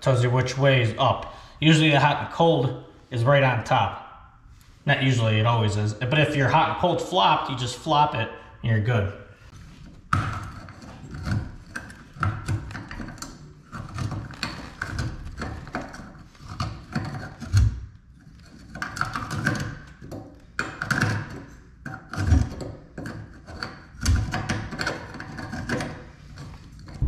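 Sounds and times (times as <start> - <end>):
hand tool scraping copper pipes: 9.5 - 27.0.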